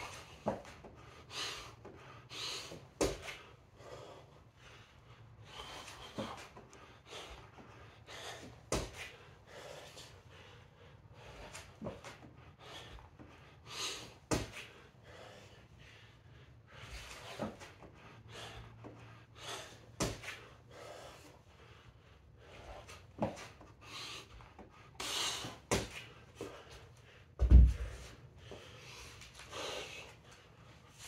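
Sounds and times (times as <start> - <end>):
man breathing hard: 0.0 - 31.0
thuds on rubber mat: 27.4 - 28.0.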